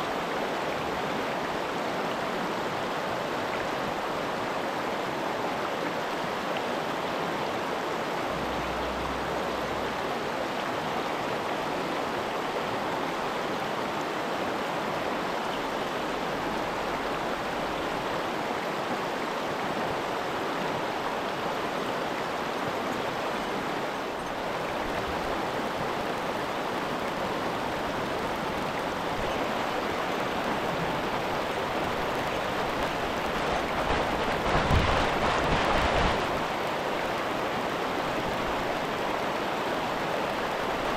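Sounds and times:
stream rushing over rocks: 0.0 - 40.9.

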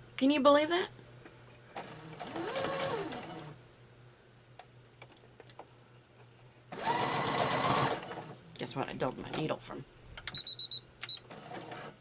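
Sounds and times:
sewing machine stitching: 1.8 - 3.6, 6.8 - 8.4, 11.3 - 12.0.

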